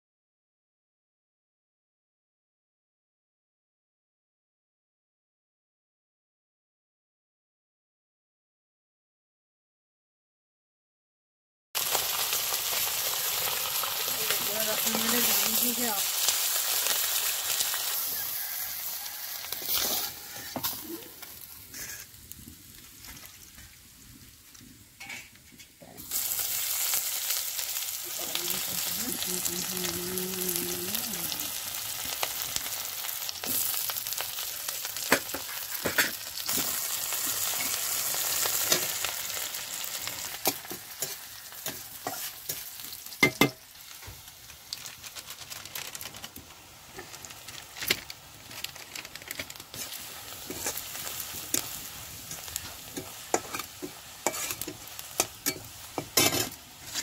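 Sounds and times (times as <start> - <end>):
hot oil sizzling: 11.8 - 57.0
spatula scraping pan: 19.5 - 20.8, 40.3 - 43.6, 49.7 - 57.0.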